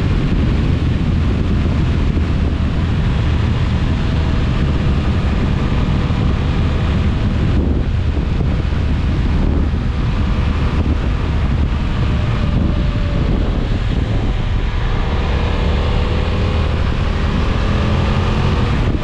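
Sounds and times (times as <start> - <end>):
motorcycle engine and tyres: 0.0 - 19.0
wind rushing over microphone: 0.0 - 19.0.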